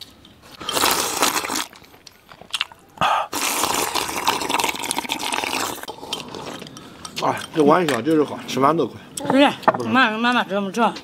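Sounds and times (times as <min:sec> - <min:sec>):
man slurping soup: 0:00.5 - 0:02.0, 0:02.9 - 0:06.7.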